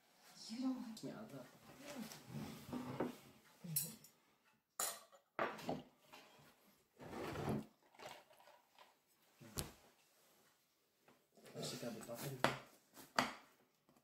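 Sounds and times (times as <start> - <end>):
cutlery clinking on plates: 4.8 - 5.7.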